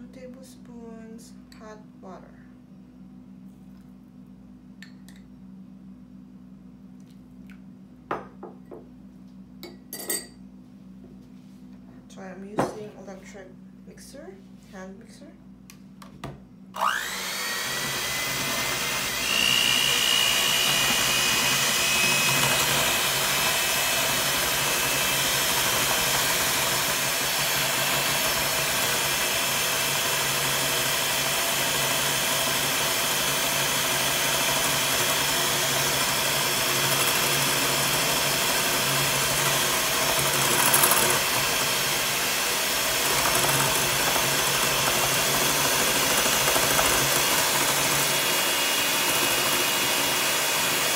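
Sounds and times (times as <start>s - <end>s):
electric hand mixer whipping: 16.8s - 50.9s.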